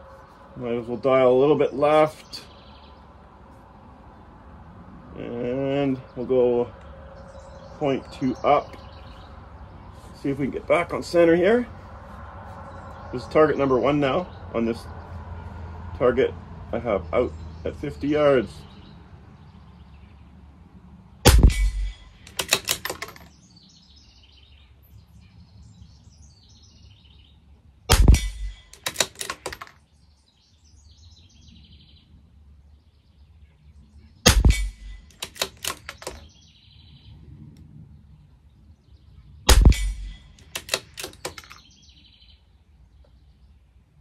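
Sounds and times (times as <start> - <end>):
rifle shots: 21.3 - 23.2, 27.9 - 29.6, 34.3 - 36.2, 39.5 - 41.2
rifle bolt clicking: 21.3 - 23.3, 27.9 - 29.7, 34.3 - 36.2, 39.5 - 41.6.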